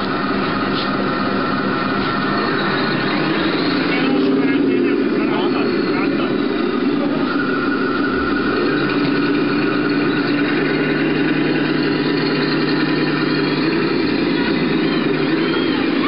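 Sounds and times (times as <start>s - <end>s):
low hum: 0.0s - 16.0s
model tank engine-like drone: 0.0s - 16.0s.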